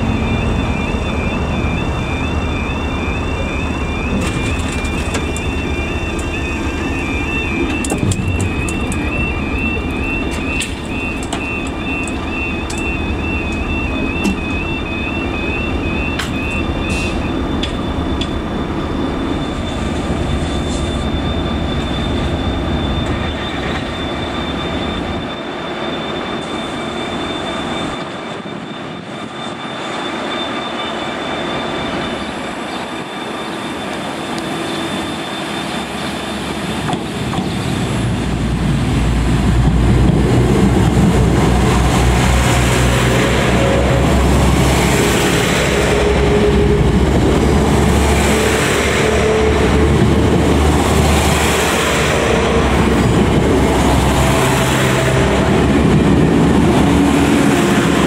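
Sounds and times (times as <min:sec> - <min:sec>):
diesel train approaching: 0:00.0 - 0:58.0
diesel train rumble: 0:00.0 - 0:58.0.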